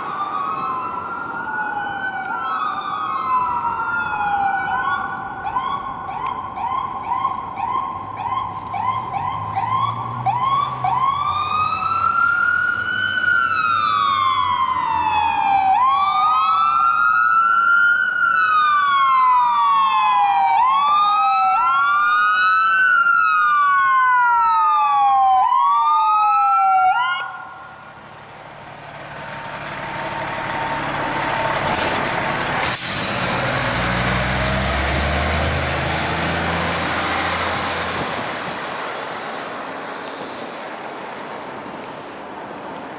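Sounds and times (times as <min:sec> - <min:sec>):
fire engine sirens: 0:00.0 - 0:41.3
diesel truck engine rumbling: 0:27.2 - 0:41.6.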